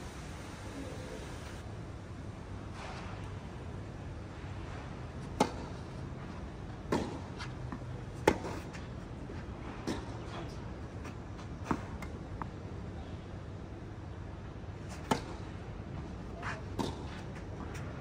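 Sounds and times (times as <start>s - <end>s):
tennis ball struck by rackets: 5.3s - 5.7s, 6.9s - 9.0s, 9.7s - 10.2s, 15.0s - 15.5s, 16.4s - 17.9s.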